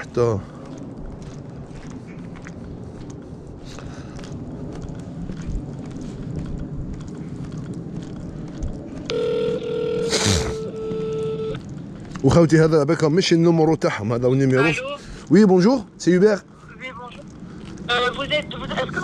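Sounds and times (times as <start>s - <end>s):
outdoor background noise: 0.0s - 19.0s
phone ringing tone: 9.1s - 11.6s.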